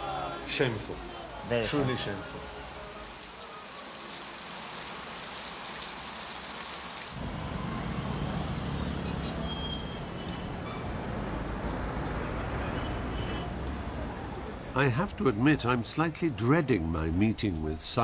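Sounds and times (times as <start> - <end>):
passing traffic rumble: 7.2 - 17.1.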